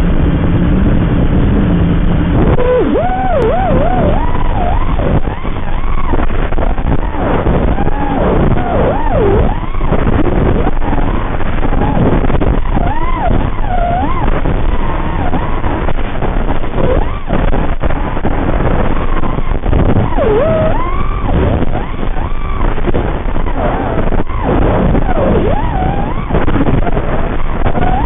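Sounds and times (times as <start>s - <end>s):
wind rush on microphone: 0.0s - 28.0s
quadcopter motors whining: 2.5s - 15.1s, 20.0s - 22.5s.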